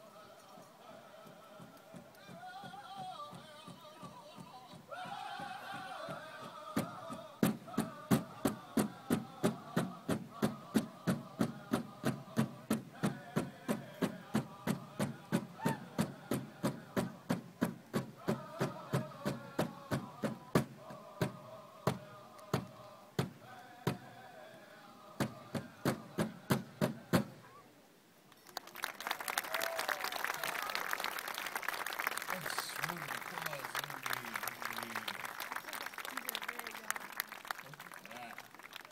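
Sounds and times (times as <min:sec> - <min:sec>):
group singing: 0:00.0 - 0:17.4, 0:18.0 - 0:27.2
drum struck in steady beat: 0:06.8 - 0:22.0, 0:25.2 - 0:27.4.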